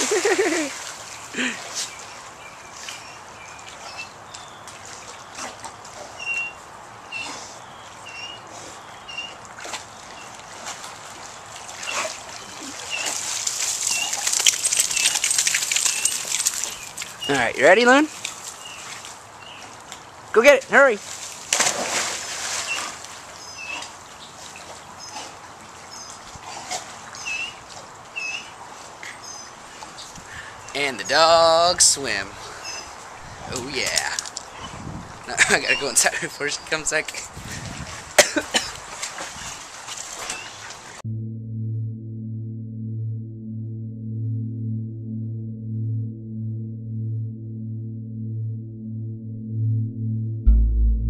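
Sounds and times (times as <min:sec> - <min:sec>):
water sloshing and lapping: 0:00.0 - 0:17.4, 0:18.0 - 0:20.3, 0:21.0 - 0:30.7, 0:32.4 - 0:41.0
dogs paddling and splashing: 0:00.0 - 0:20.3, 0:21.0 - 0:30.7, 0:32.4 - 0:41.0
dog splashing into pool: 0:09.5 - 0:17.3, 0:21.0 - 0:25.7, 0:37.8 - 0:41.0.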